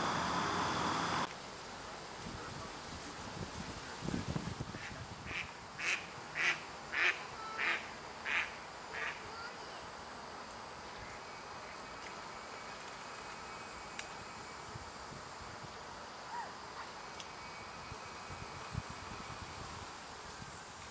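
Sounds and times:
duck quacking: 4.8s - 9.2s.

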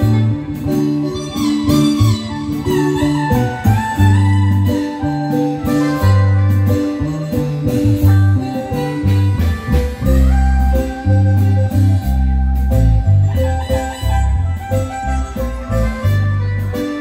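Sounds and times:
marimba band dance music: 0.0s - 17.0s.

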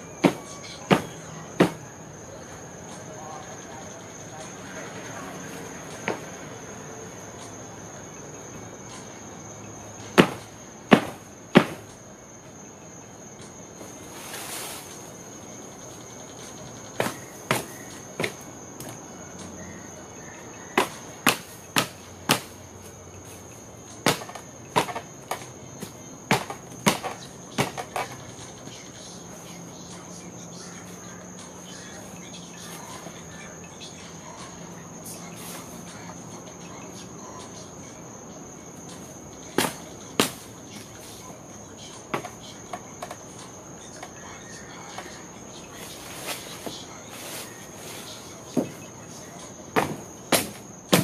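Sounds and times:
crickets trilling: 0.0s - 51.0s.

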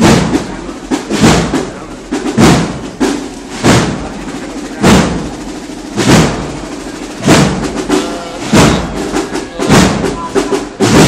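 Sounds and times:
heavy march drum beats: 0.0s - 11.0s.

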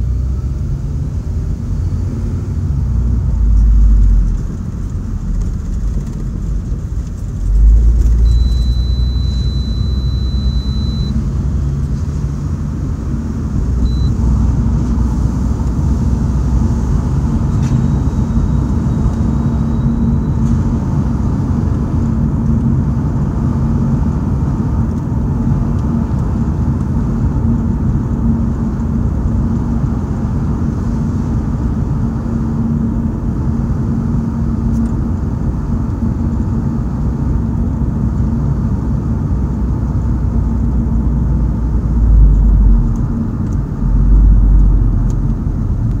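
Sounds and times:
faint steady hum: 0.0s - 11.6s, 12.7s - 22.7s
road and engine rumble: 0.0s - 46.0s
strong low rumbles: 0.0s - 46.0s.

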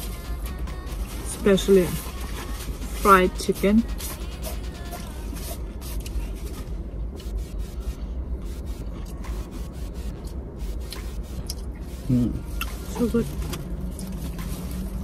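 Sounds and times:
steady low rumble: 0.0s - 15.0s
scraping and rustling of food: 1.0s - 7.4s, 10.7s - 15.0s.

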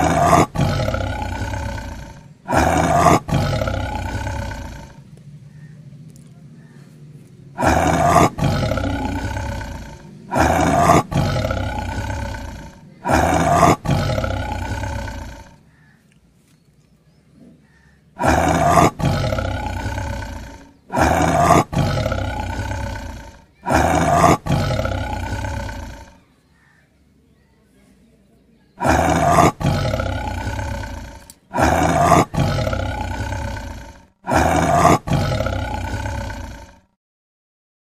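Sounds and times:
big cat roaring: 0.0s - 5.0s, 7.5s - 15.8s, 17.5s - 26.3s, 28.8s - 37.0s.

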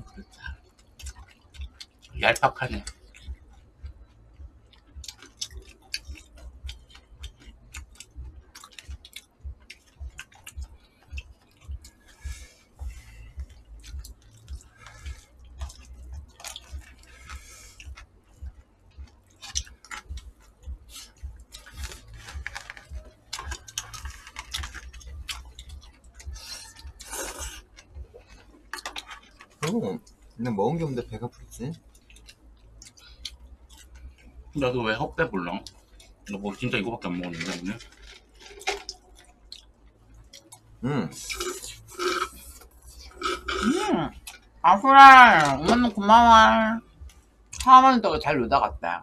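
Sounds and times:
chewing: 0.0s - 30.4s, 31.3s - 44.6s
slurping noodles: 26.4s - 27.6s, 41.1s - 43.8s.

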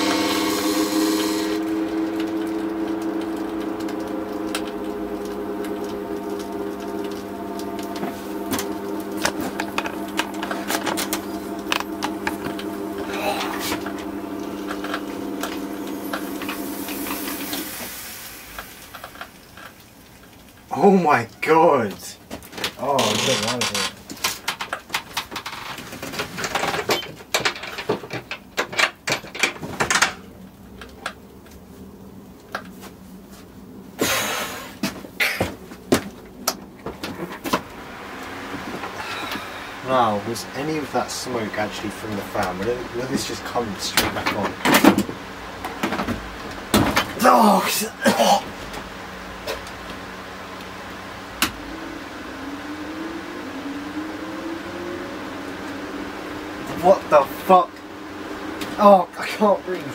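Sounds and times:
burning motor crackling and snapping: 0.0s - 20.8s, 35.8s - 58.8s
steady electrical buzz: 0.0s - 27.3s, 29.9s - 59.9s.

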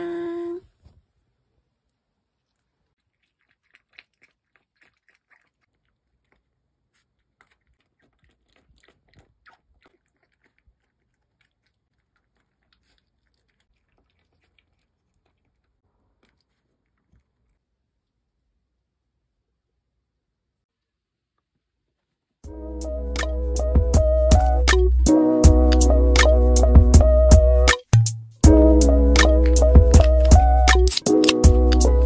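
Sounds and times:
puppy crunching dry kibble: 2.4s - 18.2s, 28.6s - 32.0s.

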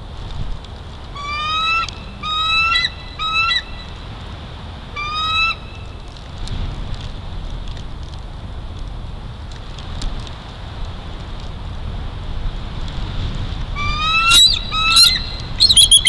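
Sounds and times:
eagle crying: 13.8s - 16.0s.

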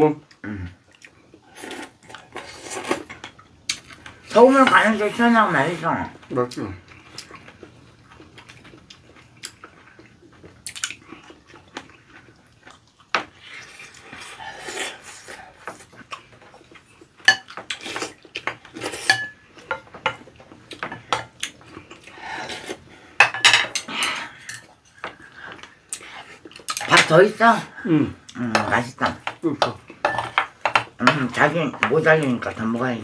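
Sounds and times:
utensils tapping ceramic bowls: 28.6s - 32.4s.

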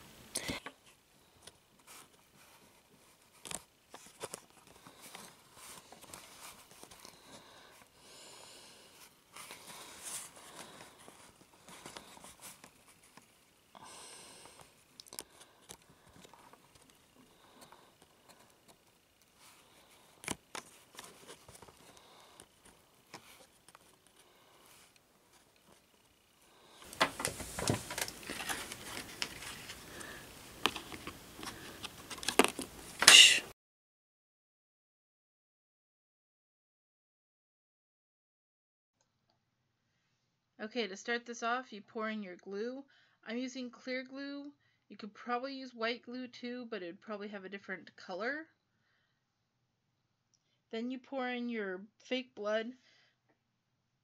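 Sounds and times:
plastic toys rustling and clicking: 0.3s - 7.4s, 26.8s - 33.4s
hiss: 33.0s - 33.5s.

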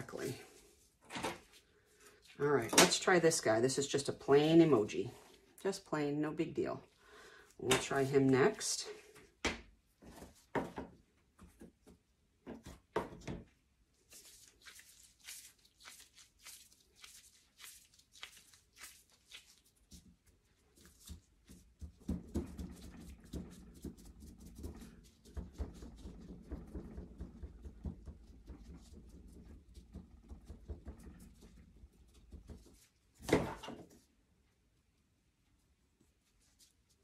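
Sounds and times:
dough pressed with soft thuds: 7.7s - 35.0s
dough sticky crackling and tearing: 14.0s - 21.9s.

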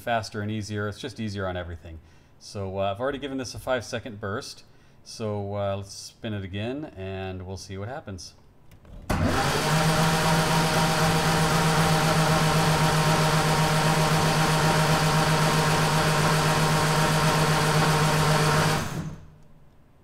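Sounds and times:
starter motor cranking engine: 9.1s - 19.3s.

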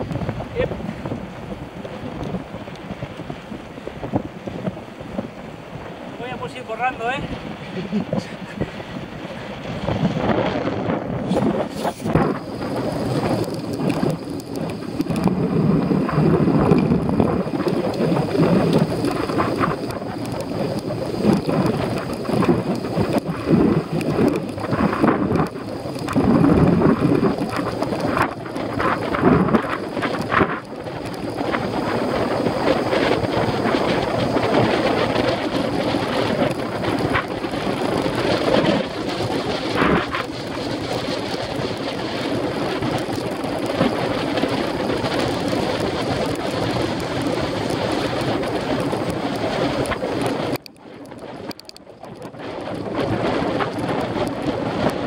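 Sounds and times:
bicycle knocking and rattling: 0.0s - 55.0s
wind buffeting microphone: 0.0s - 55.0s
tyres hissing on wet road: 11.2s - 49.3s.

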